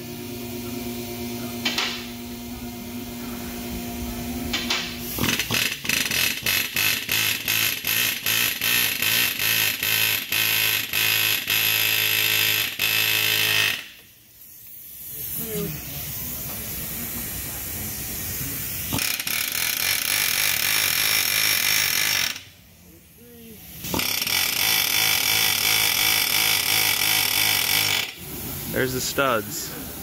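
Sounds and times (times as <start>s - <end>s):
steady mechanical hum: 0.0s - 30.0s
pneumatic air hammer bursts: 4.5s - 15.7s, 16.7s - 22.6s, 23.7s - 28.6s.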